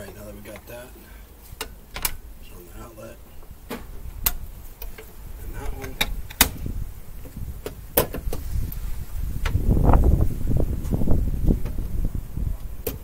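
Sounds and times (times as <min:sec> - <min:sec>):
wind rumble on microphone: 0:03.4 - 0:13.0.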